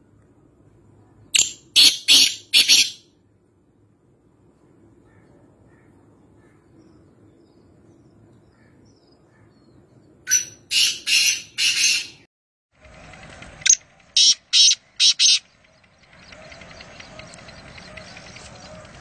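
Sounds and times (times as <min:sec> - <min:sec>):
francolin harsh grating calls: 0:01.4 - 0:03.0, 0:13.7 - 0:15.5.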